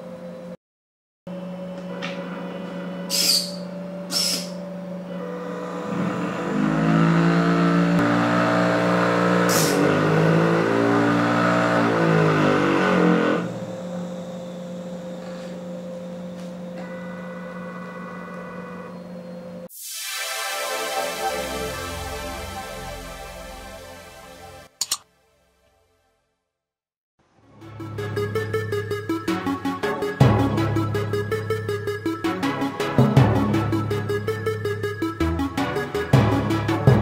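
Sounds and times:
stepper motors humming: 1.3 - 19.7
motors whining: 1.7 - 19.7
short high buzzes: 3.0 - 7.0.

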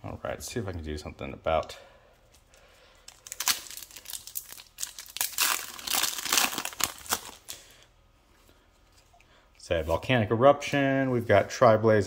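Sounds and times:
foil wrapper crinkling and tearing: 3.1 - 7.7.

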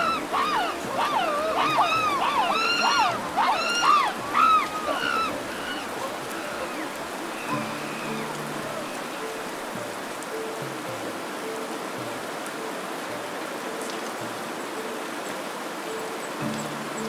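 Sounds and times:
baboons squealing: 0.0 - 9.0
rushing water: 0.0 - 17.0.

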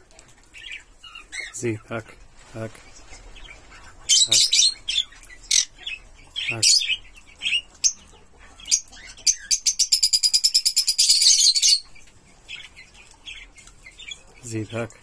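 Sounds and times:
parrot chirping: 3.2 - 14.3.

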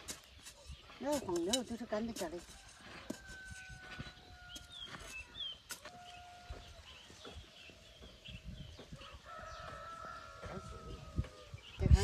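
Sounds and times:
small birds chirping: 0.0 - 12.0
faint rooster crowing: 2.5 - 7.2, 8.9 - 11.6.

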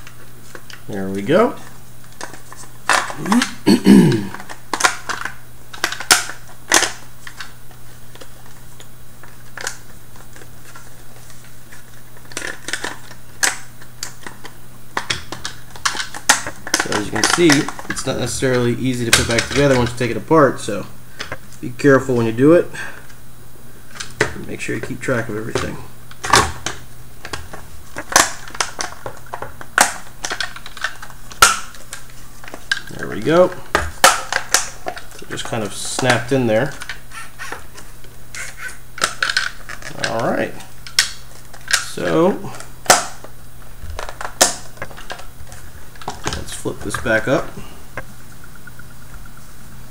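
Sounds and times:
steady low hum: 0.0 - 49.9
plastic parts clicking and knocking: 25.6 - 32.9, 39.0 - 42.2, 42.8 - 47.3
plastic casing clicking and snapping: 44.0 - 45.3.

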